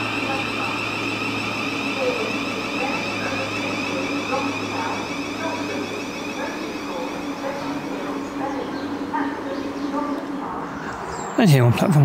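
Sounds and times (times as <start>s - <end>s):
electric train whine: 0.0s - 11.5s.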